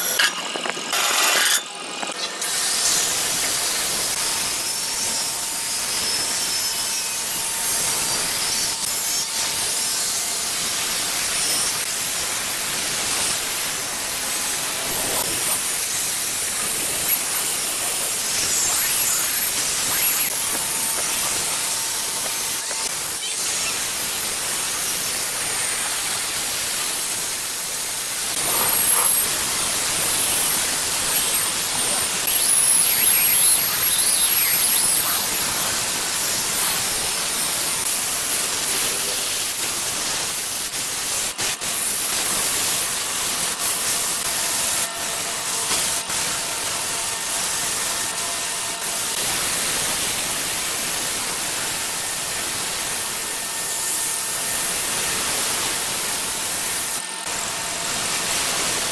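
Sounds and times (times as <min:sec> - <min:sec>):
angle grinder motor whine: 0:00.0 - 0:39.8
abrasive hissing on wood: 0:10.5 - 0:41.0.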